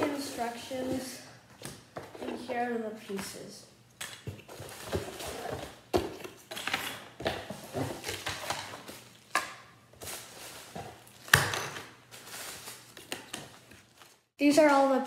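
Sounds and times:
plastic bags and cardboard rustling: 0.0s - 1.2s, 4.2s - 14.3s.

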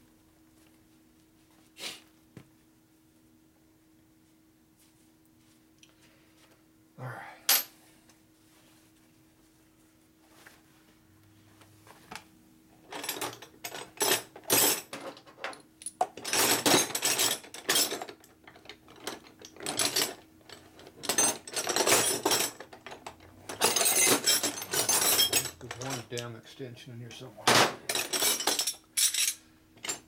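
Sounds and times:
metal tools clinking: 12.9s - 26.3s, 27.5s - 30.0s.

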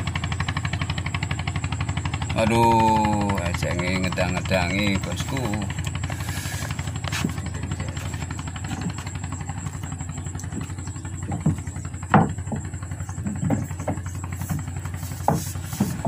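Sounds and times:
engine running: 0.0s - 16.0s
light knocks: 10.4s - 16.0s.

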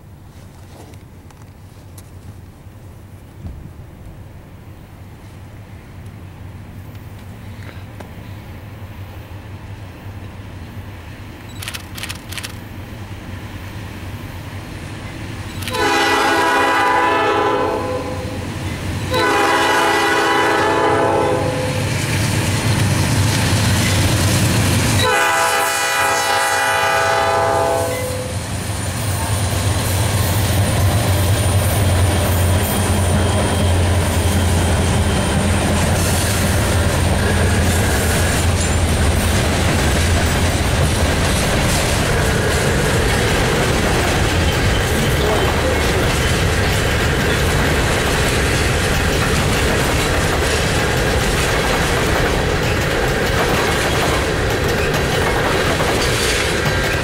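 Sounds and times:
locomotive engine rumble: 0.0s - 57.0s
train horn blasts: 15.6s - 18.4s, 19.1s - 21.9s, 25.0s - 28.4s
freight cars clickety-clack: 18.6s - 25.6s, 28.4s - 57.0s.

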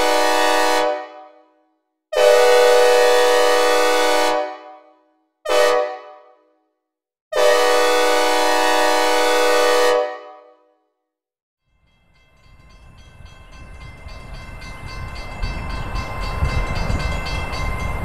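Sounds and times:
synthesized train horn chord: 0.0s - 1.5s, 2.2s - 6.5s, 7.4s - 10.7s.

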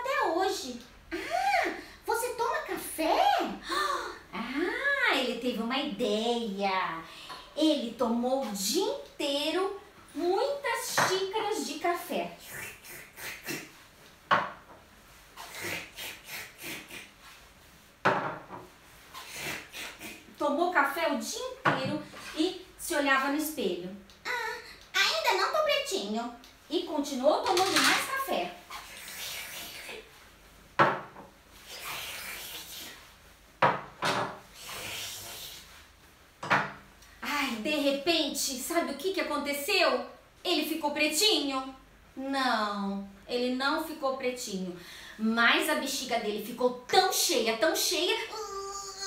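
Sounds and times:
mouth slurping and gulping: 12.4s - 13.7s, 15.4s - 17.2s, 19.1s - 20.3s, 28.7s - 30.0s, 31.6s - 33.0s, 34.5s - 35.7s.

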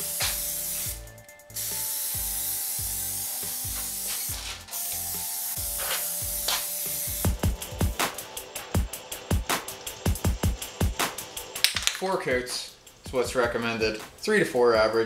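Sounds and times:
aerosol can spraying: 0.0s - 11.7s.

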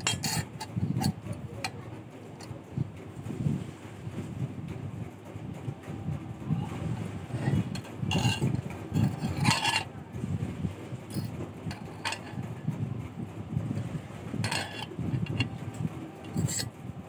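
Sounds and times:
wire scraping metal rod: 0.0s - 1.8s, 6.9s - 10.0s, 11.1s - 12.6s, 14.3s - 16.8s
steady low rumble: 0.0s - 17.0s.

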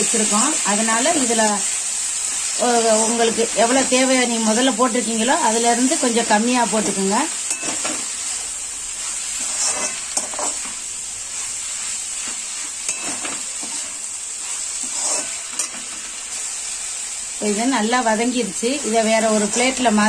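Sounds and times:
onions and tomatoes sizzling in oil: 0.0s - 20.0s
metal spoon scraping pan: 9.3s - 10.8s, 12.2s - 16.2s.

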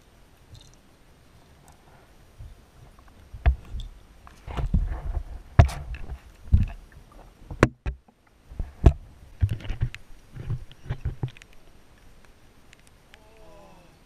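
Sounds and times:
muffled underwater knocks and thuds: 3.3s - 3.9s, 4.5s - 11.4s.

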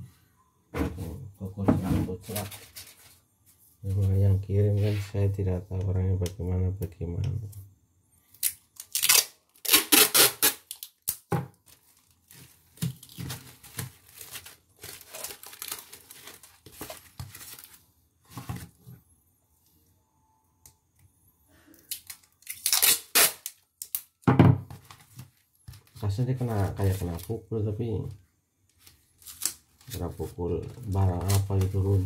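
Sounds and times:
cardboard and plastic rustling: 0.8s - 4.2s, 11.4s - 19.0s, 24.6s - 27.4s, 28.7s - 32.0s
packing tape tearing off roll: 8.4s - 17.7s, 21.8s - 24.2s, 29.2s - 30.0s, 30.8s - 31.9s.

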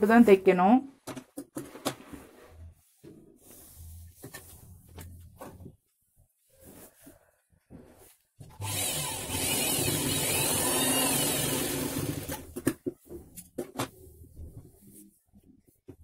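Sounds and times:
sewing machine running: 8.6s - 12.4s.

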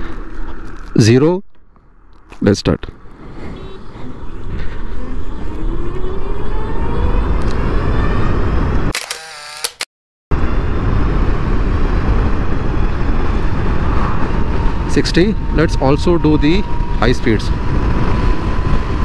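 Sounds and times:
wind noise on microphone: 2.9s - 8.9s, 10.3s - 19.0s
electric motor whine rising: 3.3s - 9.8s.

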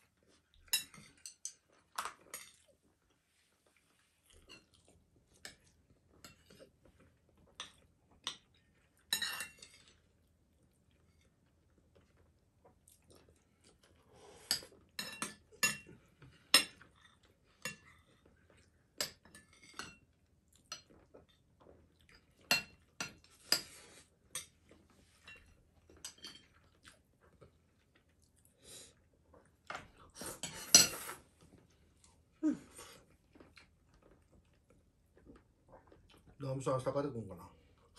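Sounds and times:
utensils clinking on ceramic bowls: 9.1s - 9.9s.

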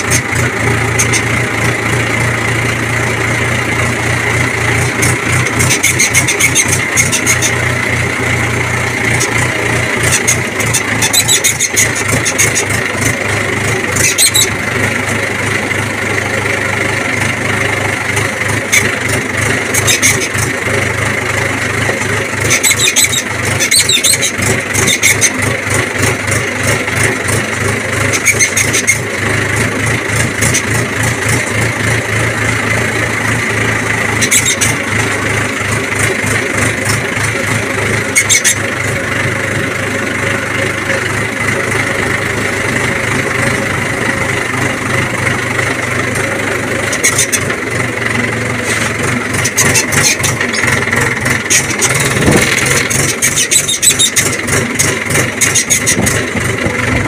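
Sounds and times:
tractor diesel engine chugging: 0.0s - 57.0s
clatter bursts: 43.4s - 57.0s.

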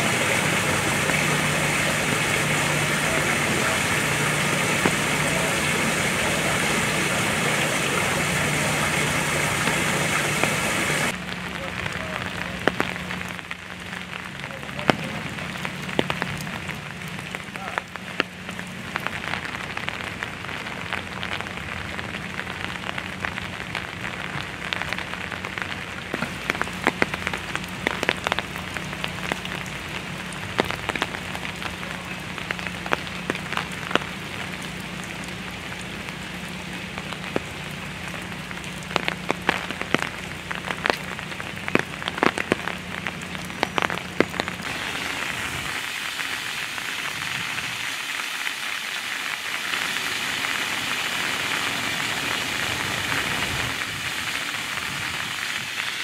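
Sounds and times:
steady low hum: 0.0s - 11.4s
rain on wet pavement and leaves: 0.0s - 56.0s.

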